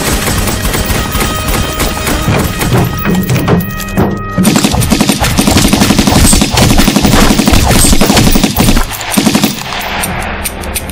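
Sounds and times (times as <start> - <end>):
automatic gunfire: 0.0 - 2.8, 4.4 - 9.8.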